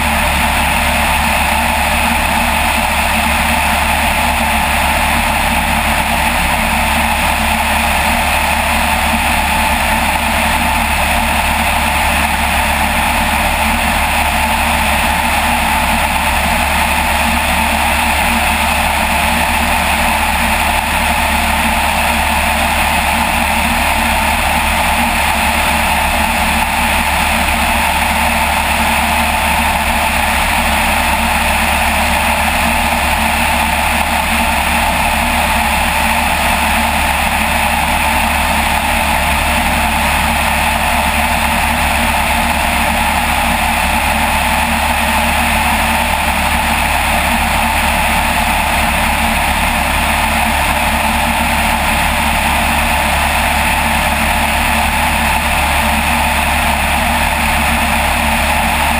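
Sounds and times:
propeller aircraft engine drone: 0:00.0 - 0:58.9.

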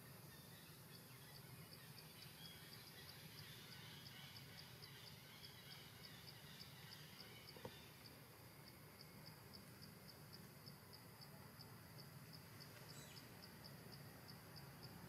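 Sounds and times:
low steady hiss: 0:00.0 - 0:15.0
faint high chirp: 0:12.8 - 0:13.3.

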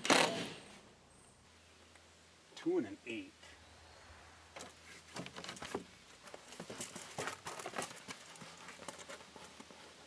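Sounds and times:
hand tools and wood clicking: 0:04.5 - 0:10.0.

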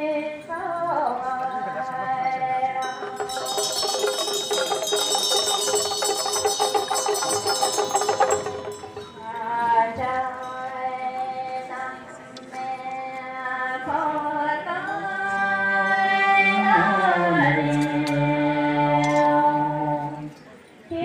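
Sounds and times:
held melody tones: 0:02.6 - 0:12.9
metal cymbals clashing: 0:02.8 - 0:11.2.

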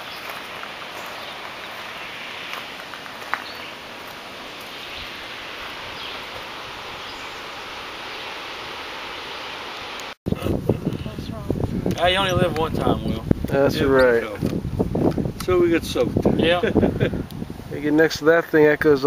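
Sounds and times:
leaves rustling in breeze: 0:00.0 - 0:19.0.

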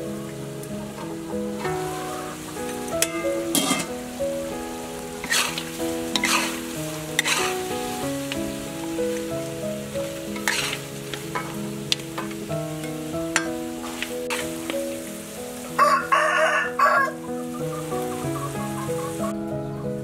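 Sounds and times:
soft background music: 0:00.0 - 0:20.0
metal ladle scraping a wok: 0:02.7 - 0:03.9, 0:05.2 - 0:07.6, 0:10.3 - 0:14.8
rooster crowing: 0:15.7 - 0:19.2.

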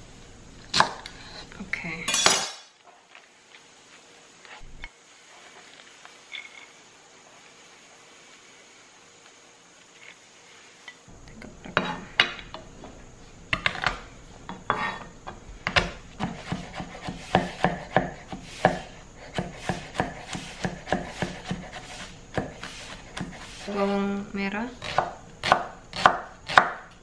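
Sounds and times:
knife chopping on wooden board: 0:15.6 - 0:23.7, 0:24.8 - 0:26.9.

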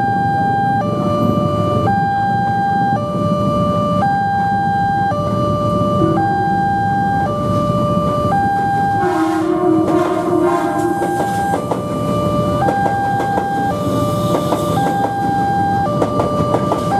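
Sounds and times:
level crossing two-tone alarm: 0:00.0 - 0:16.9
train rumbling past: 0:06.0 - 0:16.9
train horn: 0:09.0 - 0:11.7.

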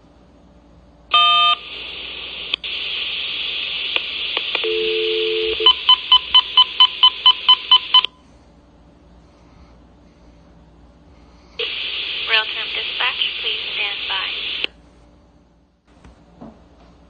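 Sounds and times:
radio hiss: 0:01.6 - 0:04.6, 0:11.6 - 0:14.7
loud radio tone: 0:11.6 - 0:14.7.

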